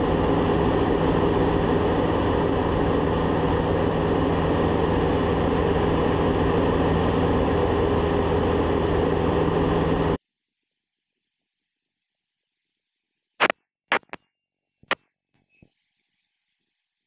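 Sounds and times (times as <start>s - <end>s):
propeller engine droning: 0.0s - 10.2s.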